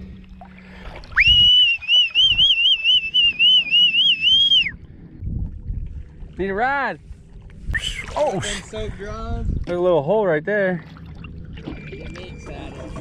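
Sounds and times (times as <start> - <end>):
person whistling: 1.2 - 4.8, 7.7 - 8.2.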